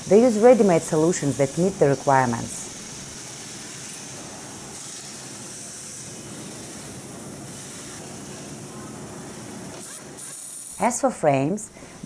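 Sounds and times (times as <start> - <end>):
factory background hiss: 0.0 - 12.0.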